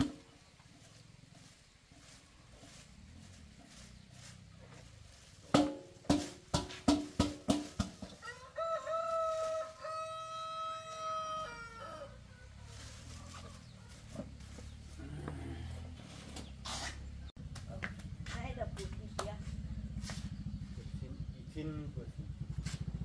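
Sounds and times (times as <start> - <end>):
sharp knocks: 5.5 - 8.1
rooster crowing: 8.2 - 12.8.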